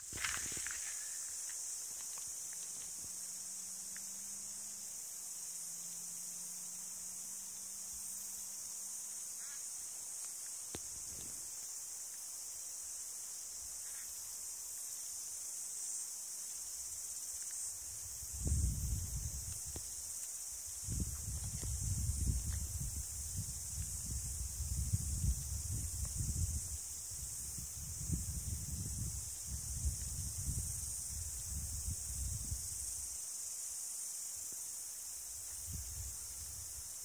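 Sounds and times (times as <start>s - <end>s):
insects shrilling: 0.0s - 6.2s.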